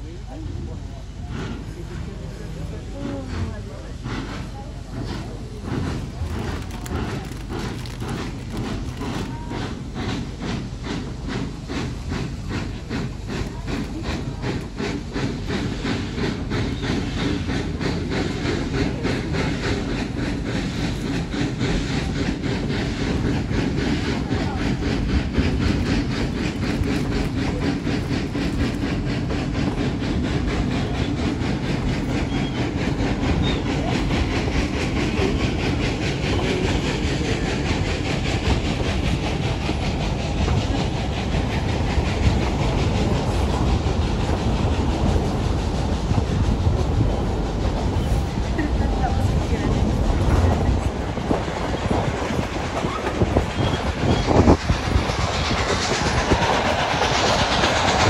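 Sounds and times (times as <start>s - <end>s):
wheels rumbling on rail: 0.0s - 58.0s
steam locomotive exhaust chuffs: 0.3s - 58.0s.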